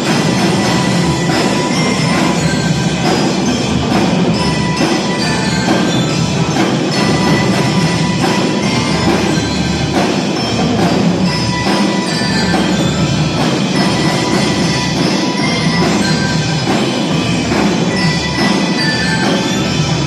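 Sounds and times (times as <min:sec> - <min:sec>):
mallet keyboards playing tune: 0:00.0 - 0:20.0
snare and bass drums marching beat: 0:00.0 - 0:20.0.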